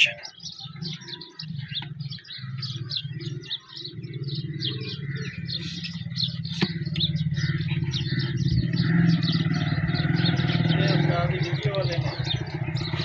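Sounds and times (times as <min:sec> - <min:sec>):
birds chirping: 0:00.0 - 0:13.0
diesel engine pulsing beat: 0:04.0 - 0:13.0.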